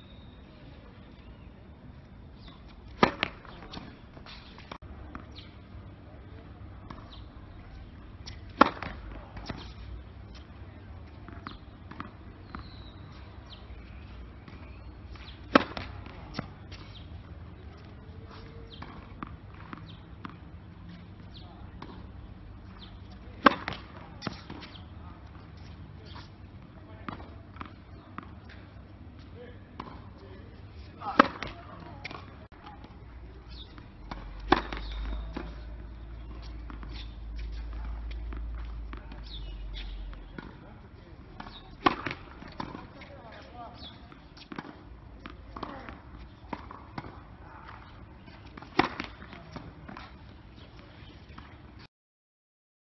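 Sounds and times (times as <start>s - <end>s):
tennis racket hitting ball: 2.4s - 5.5s, 8.2s - 10.4s, 15.2s - 17.0s, 22.8s - 24.8s, 31.0s - 32.3s, 33.5s - 35.6s, 36.2s - 40.6s, 41.4s - 50.2s
ball bouncing: 33.7s - 35.6s.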